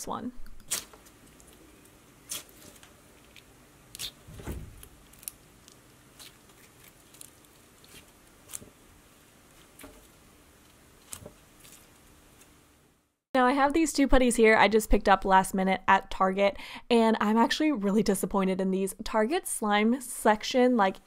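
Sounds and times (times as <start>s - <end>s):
putty squishing: 0.5s - 10.2s.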